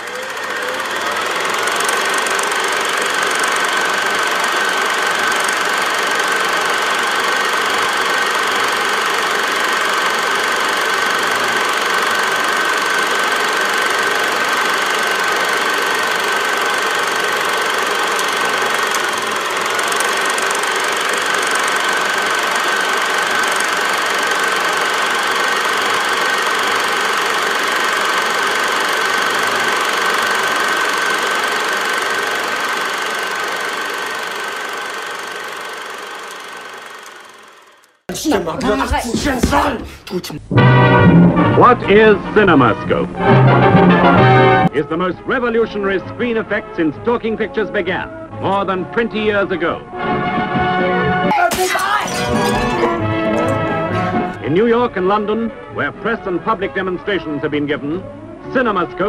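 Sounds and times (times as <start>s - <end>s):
film projector clattering: 0.0s - 40.0s, 51.3s - 54.4s.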